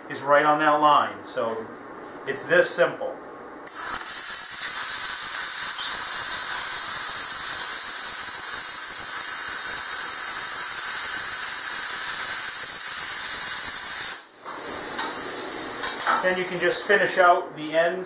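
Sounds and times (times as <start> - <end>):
plasma cutter hissing: 3.7 - 17.1.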